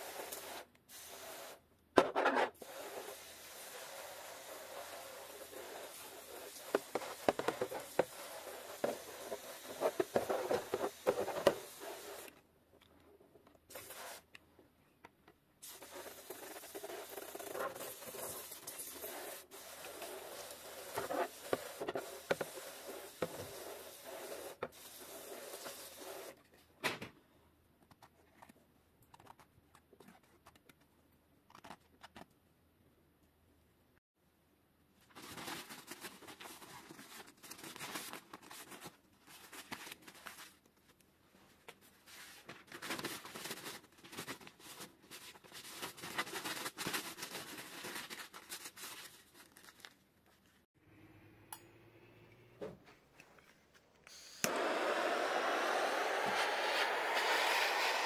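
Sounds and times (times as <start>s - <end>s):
hand sprayer hissing: 2.6s - 12.3s, 15.6s - 26.4s, 54.1s - 58.0s.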